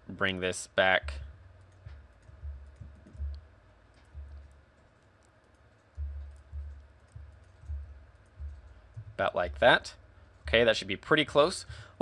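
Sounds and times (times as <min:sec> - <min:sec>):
soft low thumps: 0:00.9 - 0:10.8
mouse and keyboard clicks: 0:01.6 - 0:09.1.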